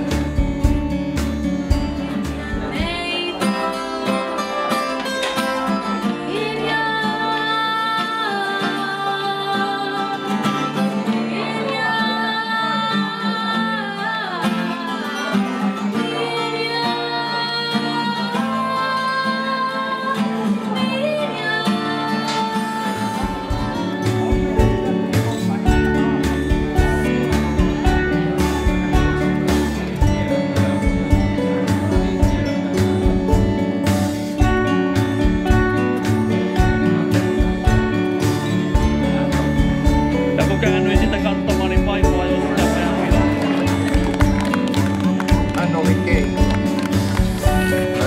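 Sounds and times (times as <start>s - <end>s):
acoustic guitar: 0.0s - 48.0s
woman singing long notes: 11.3s - 24.8s.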